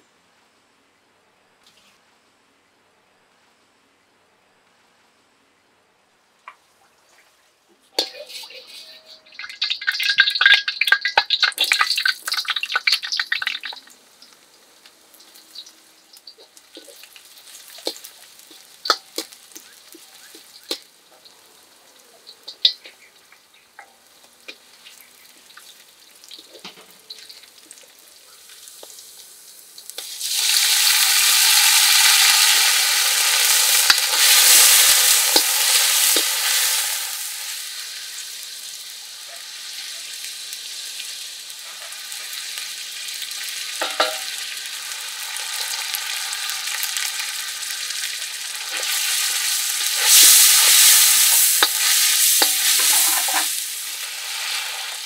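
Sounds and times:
food sizzling in hot oil: 7.9 - 55.0
metal ladle scraping wok: 8.0 - 10.2, 43.8 - 44.4, 48.7 - 55.0.

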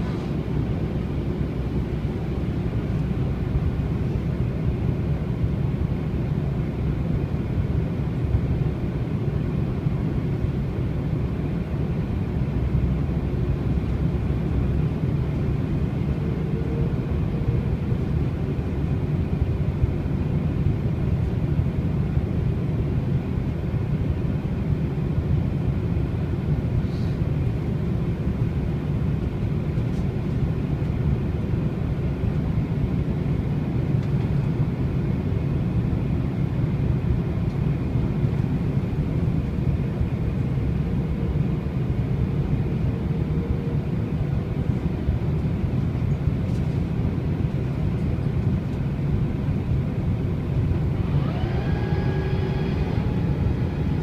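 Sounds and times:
airliner cabin engine rumble: 0.0 - 54.0.

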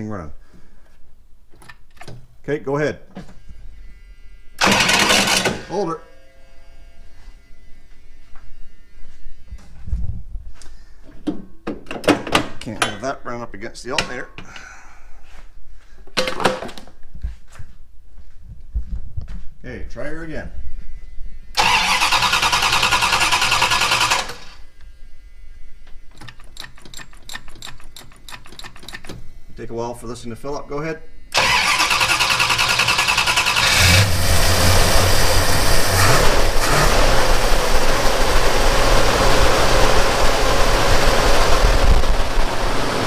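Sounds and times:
low buzzing hum: 3.2 - 4.6, 5.5 - 11.7, 17.9 - 21.6, 24.2 - 31.4, 33.8 - 43.0
engine starter cranking: 4.6 - 5.7, 21.6 - 24.6, 31.4 - 34.8.

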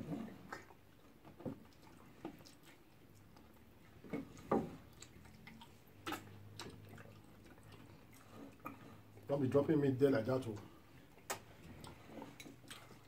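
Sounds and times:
lip smacks and mouth clicks: 0.4 - 3.7, 4.9 - 9.3, 11.1 - 13.0.

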